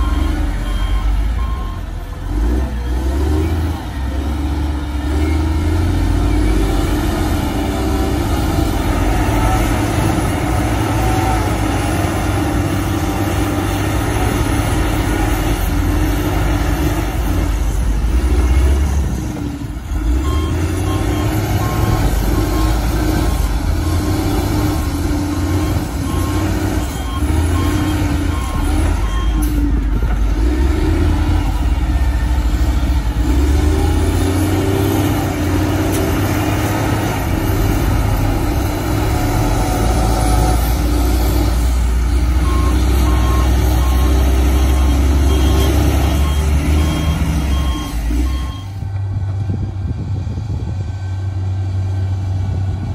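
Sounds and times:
reversing alarm beeping: 0:00.0 - 0:02.0, 0:20.0 - 0:29.7, 0:42.4 - 0:48.8
dump truck engine: 0:00.0 - 0:52.9
wheel loader diesel engine: 0:00.0 - 0:52.9.

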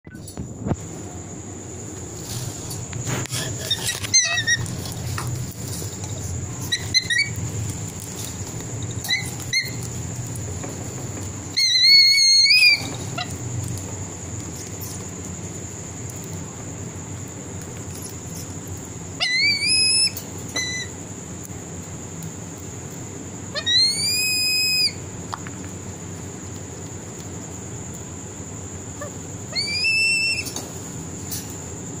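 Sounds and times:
bird of prey whistled calls: 0:19.2 - 0:20.9, 0:23.6 - 0:25.0, 0:29.0 - 0:30.6.

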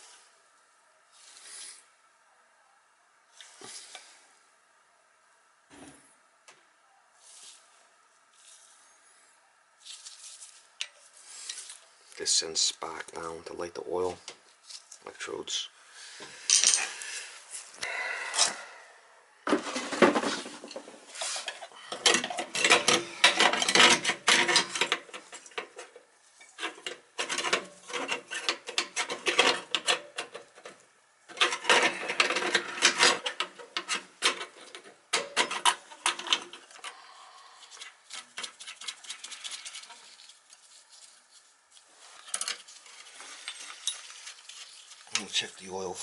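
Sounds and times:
metal parts clinking and scraping: 0:16.5 - 0:17.0, 0:19.6 - 0:30.7, 0:31.3 - 0:37.0, 0:42.1 - 0:45.4.

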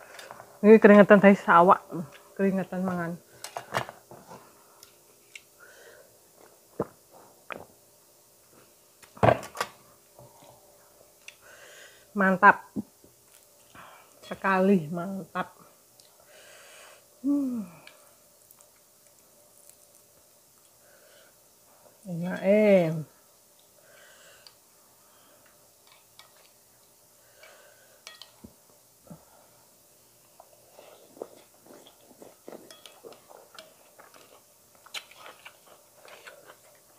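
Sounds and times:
faint clicks of eating: 0:04.8 - 0:05.5, 0:11.2 - 0:11.4, 0:16.0 - 0:16.2, 0:24.4 - 0:24.6, 0:31.2 - 0:36.9.

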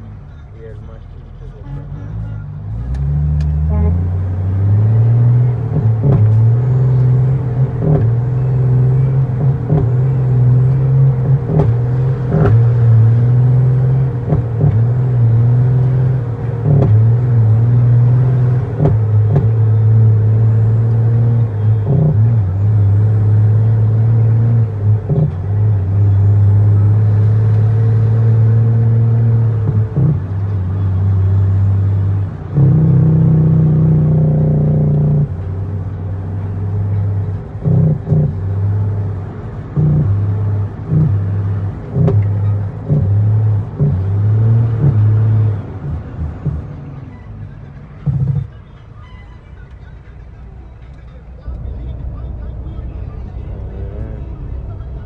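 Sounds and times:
truck diesel engine droning: 0:00.0 - 0:55.0.

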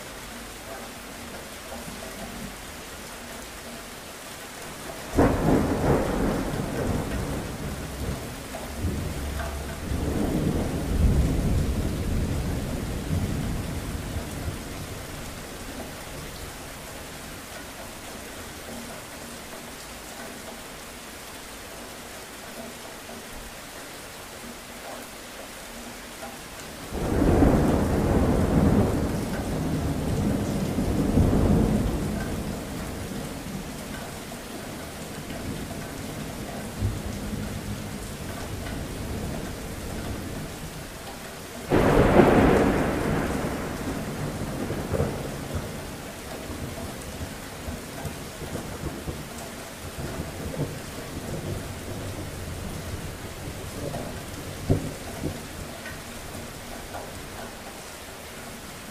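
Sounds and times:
steady rain falling: 0:00.0 - 0:58.9
thunder claps: 0:05.1 - 0:16.0, 0:26.9 - 0:34.0, 0:41.6 - 0:49.3, 0:49.9 - 0:55.7.

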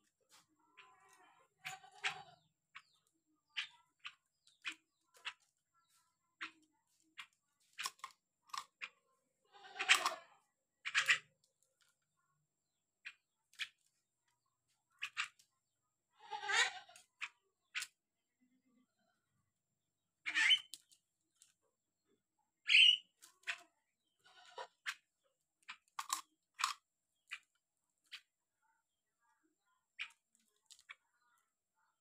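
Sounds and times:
harsh bird calls: 0:20.2 - 0:20.9, 0:22.6 - 0:25.0.

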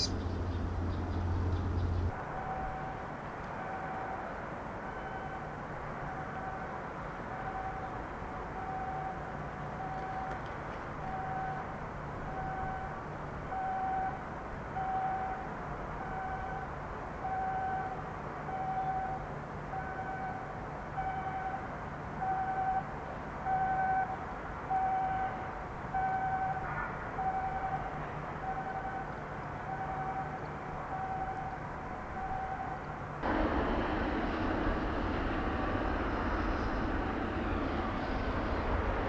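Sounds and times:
outdoor background noise: 0:00.0 - 0:39.0
low steady hum: 0:33.2 - 0:39.0.

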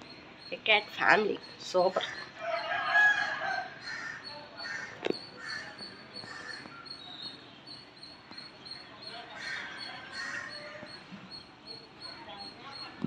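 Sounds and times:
fowl calling: 0:01.9 - 0:07.0, 0:09.1 - 0:11.4.

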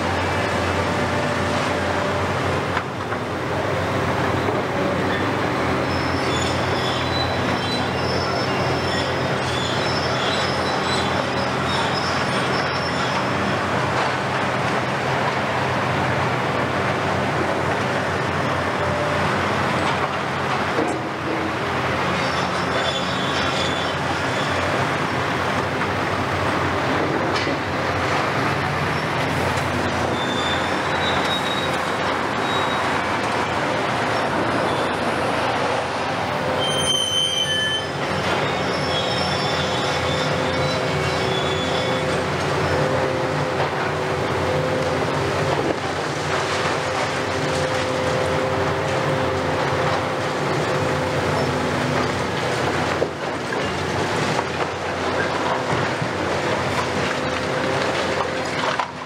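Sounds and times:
diesel engines running: 0:00.0 - 0:59.0
high metallic squealing: 0:05.8 - 0:13.4, 0:22.2 - 0:24.7, 0:30.0 - 0:33.0, 0:36.3 - 0:42.9.

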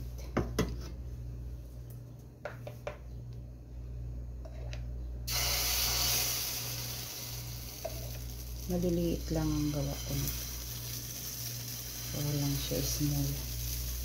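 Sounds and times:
batter sizzling in a hot wok: 0:05.3 - 0:14.0.

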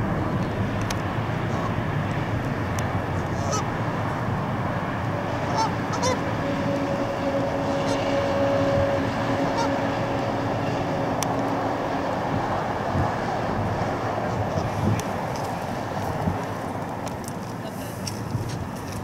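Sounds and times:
steady droning tone: 0:00.0 - 0:15.0
jet engines roaring: 0:00.0 - 0:17.6.

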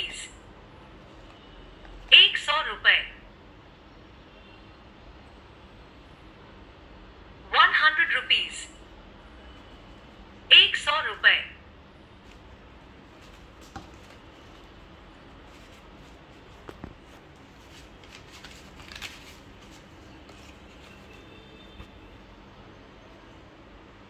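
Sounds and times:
banknotes rustling: 0:12.2 - 0:22.2.

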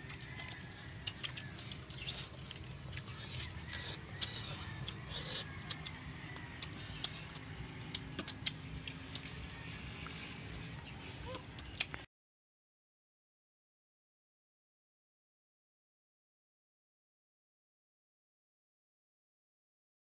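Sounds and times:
eggshells cracking and peeling: 0:00.0 - 0:10.3
low background hum: 0:00.0 - 0:12.1.

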